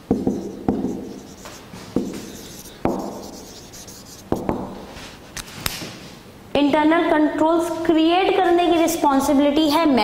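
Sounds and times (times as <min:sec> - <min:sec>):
marker scratching on whiteboard: 0:00.0 - 0:04.8
marker tapping on whiteboard: 0:00.1 - 0:04.8.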